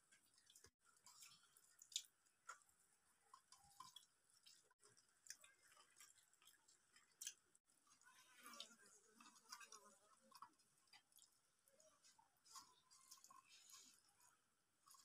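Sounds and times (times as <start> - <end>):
chewing: 0.0 - 15.0.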